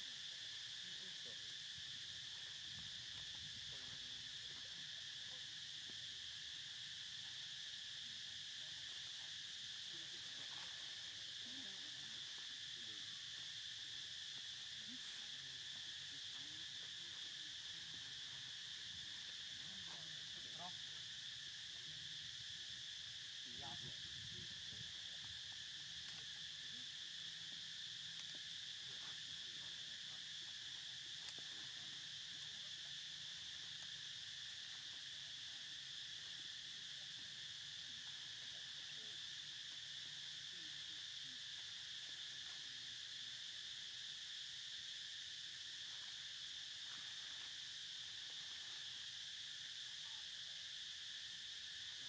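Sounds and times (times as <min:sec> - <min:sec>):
insects droning: 0:00.0 - 0:52.0.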